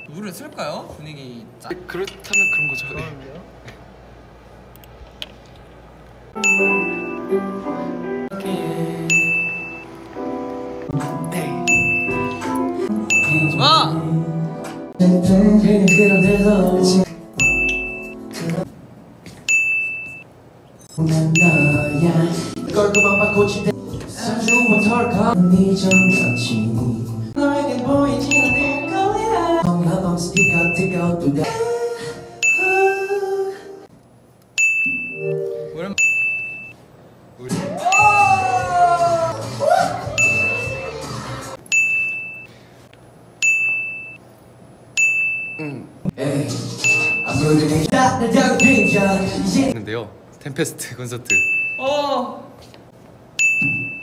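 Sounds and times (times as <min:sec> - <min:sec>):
bell-like ding: 0:06.4 - 0:07.2, 0:09.1 - 0:09.8, 0:34.6 - 0:35.2, 0:53.4 - 0:54.0
snatches of singing and music: 0:18.1 - 0:18.8, 0:20.9 - 0:33.9, 0:46.1 - 0:49.8.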